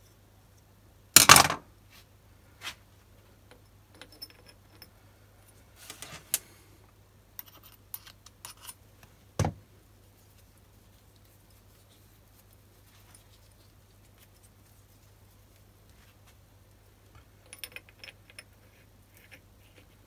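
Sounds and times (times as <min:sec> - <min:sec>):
faint steady hum: 0:00.0 - 0:20.0
metallic clicks and clinks: 0:17.4 - 0:18.6.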